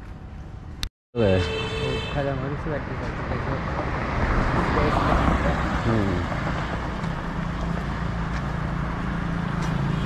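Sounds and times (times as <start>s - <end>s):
low rumble of road noise: 0.0s - 10.0s
motor vehicle running: 2.5s - 10.0s.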